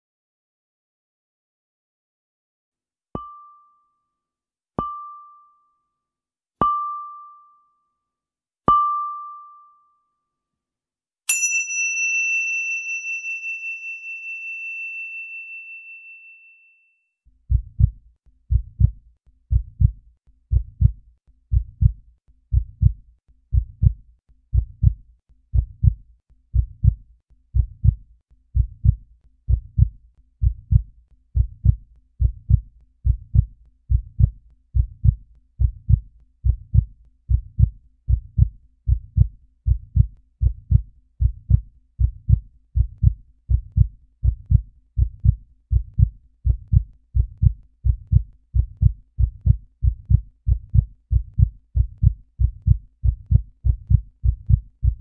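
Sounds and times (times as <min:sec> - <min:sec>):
bright bell-like ding: 0:06.6 - 0:07.8, 0:08.7 - 0:10.0, 0:11.3 - 0:17.0
short high pings: 0:11.3 - 0:16.9
heartbeat thump: 0:17.5 - 0:27.0, 0:27.6 - 0:28.0, 0:28.6 - 0:55.0.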